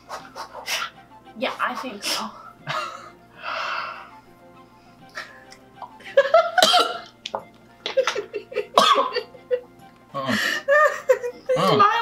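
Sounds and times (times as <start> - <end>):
quiet background music: 0.0 - 12.0
man gagging and coughing: 6.6 - 7.1, 8.7 - 9.3.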